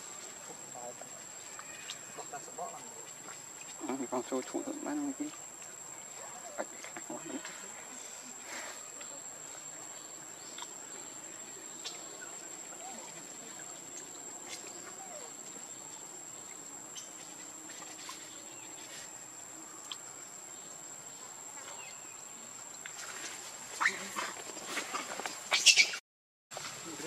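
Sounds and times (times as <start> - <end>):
insects droning: 0.0 - 26.0, 26.6 - 27.0.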